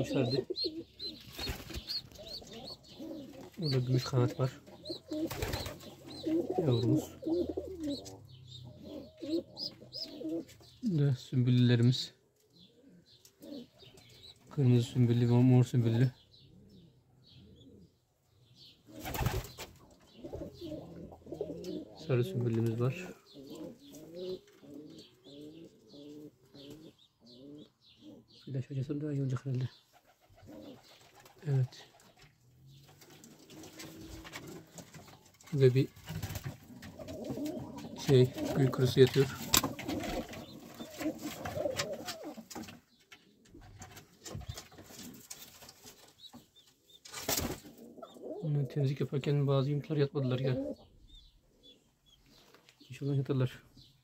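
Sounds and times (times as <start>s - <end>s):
pigeons cooing: 0.0s - 11.0s, 12.5s - 14.4s, 16.2s - 28.5s, 29.8s - 49.1s, 50.0s - 52.4s
pigeon wings flapping: 1.3s - 2.0s, 5.2s - 5.9s, 19.0s - 19.7s, 39.4s - 40.4s.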